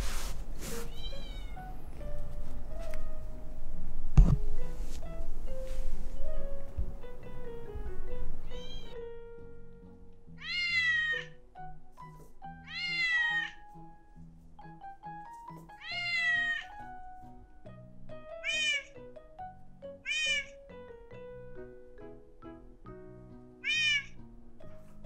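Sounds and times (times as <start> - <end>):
cat meowing: 0.8 - 1.7, 8.4 - 9.0, 10.4 - 11.4, 12.6 - 13.6, 15.8 - 16.7, 18.4 - 19.0, 20.0 - 20.6, 23.6 - 24.2
background music of plucked notes: 4.4 - 25.0.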